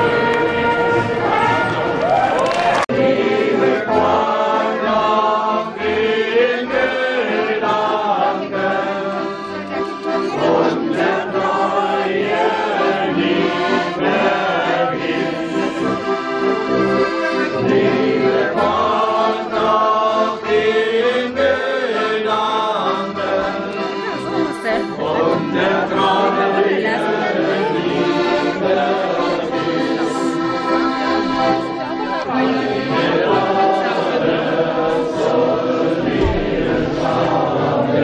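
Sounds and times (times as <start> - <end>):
group of voices singing: 0.0 - 38.0
instrumental music: 0.0 - 38.0.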